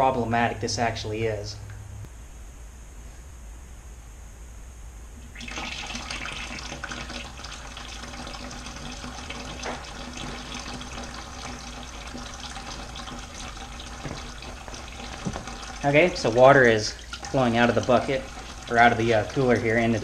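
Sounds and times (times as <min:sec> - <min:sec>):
water running through tube: 0:05.2 - 0:20.0
water splashing into plastic bucket: 0:05.2 - 0:20.0.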